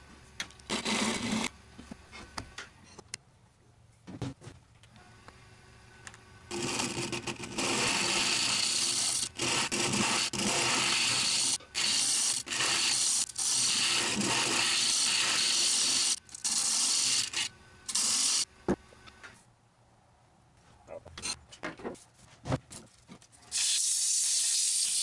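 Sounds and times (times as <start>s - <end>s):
chisel scraping spinning wood: 6.5s - 18.1s
wood lathe running: 6.5s - 18.4s.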